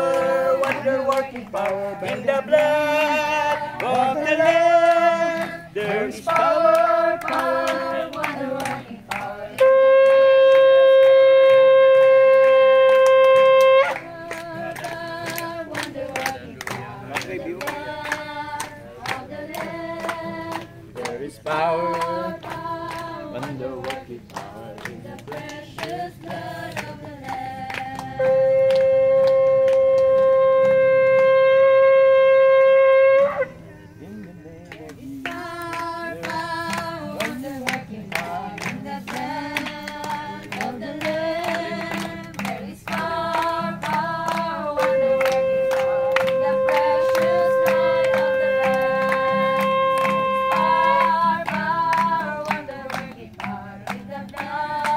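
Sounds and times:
shofar blasts: 9.6s - 14.1s, 28.2s - 33.8s, 43.8s - 51.5s.

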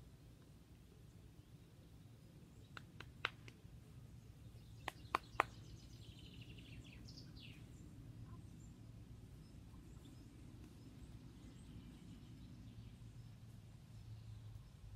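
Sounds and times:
faint low rumble: 5.6s - 14.9s.

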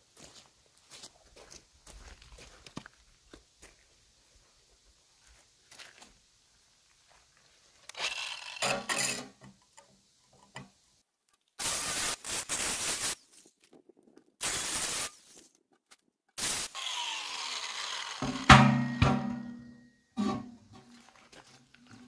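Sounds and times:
power cutter sawing through steel: 7.9s - 9.3s, 16.4s - 19.0s
motor winding down whine: 16.7s - 18.5s.

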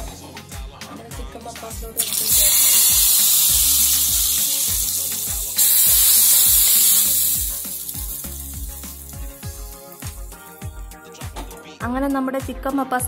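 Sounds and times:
background music with steady beat: 0.0s - 13.0s
hot oil sizzling in curry: 2.0s - 10.8s.

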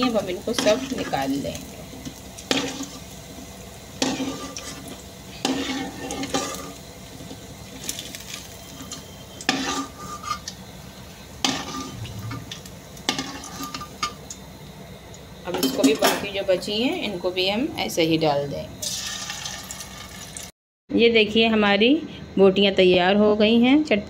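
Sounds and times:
hot oil sizzling: 0.0s - 20.6s
spatula scraping metal pan: 4.0s - 6.8s, 8.6s - 10.5s, 11.4s - 14.0s.

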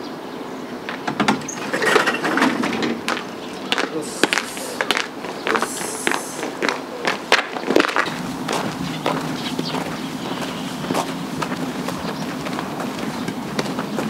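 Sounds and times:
clicks and knocks: 0.9s - 3.2s
footsteps on concrete: 3.0s - 14.0s.

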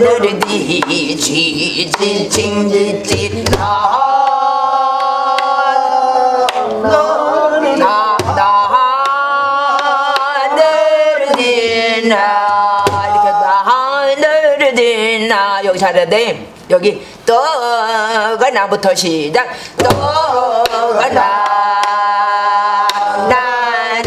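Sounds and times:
stick striking barrel drum: 1.9s - 3.8s, 8.1s - 8.6s, 12.8s - 13.2s, 19.8s - 21.2s.

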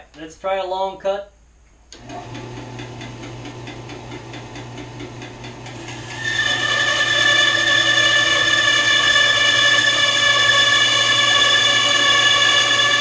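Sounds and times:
bandsaw blade whining through log: 2.0s - 13.0s
bandsaw humming: 2.0s - 13.0s.

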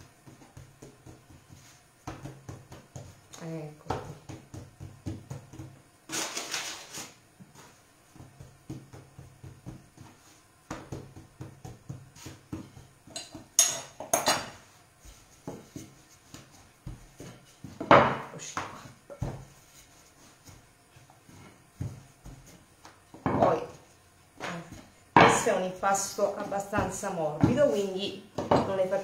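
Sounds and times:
taps on wooden pastry board: 3.8s - 5.8s.

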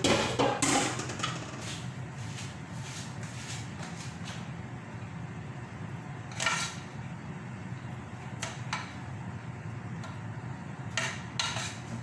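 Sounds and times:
steady low hum: 0.0s - 12.0s
spoon scraping rice in a pot: 6.3s - 6.9s, 10.9s - 12.0s.

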